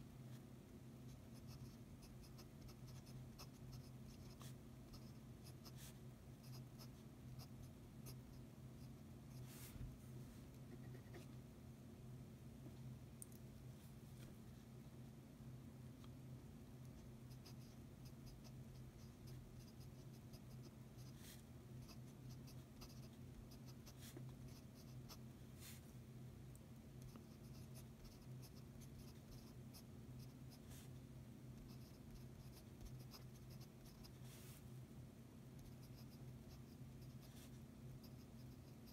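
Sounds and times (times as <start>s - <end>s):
pen nib scratching on paper: 1.1s - 8.9s, 16.8s - 25.2s, 27.0s - 30.9s, 31.6s - 34.3s, 35.6s - 38.9s.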